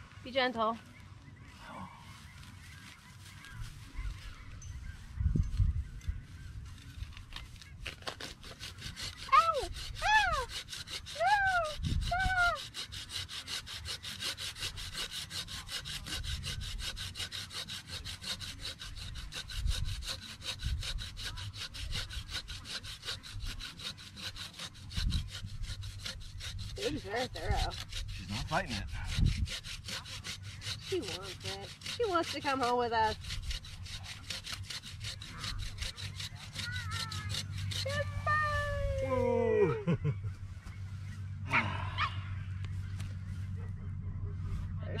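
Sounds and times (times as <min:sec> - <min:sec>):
hand saw cutting wood: 0:07.6 - 0:38.4.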